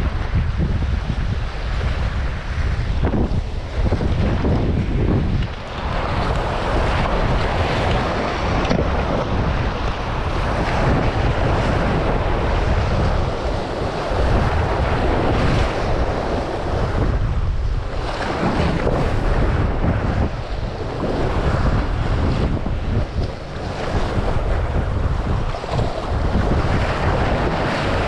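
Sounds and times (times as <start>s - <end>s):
waves washing against rocks: 0.0s - 28.0s
wind buffeting microphone: 0.0s - 28.0s.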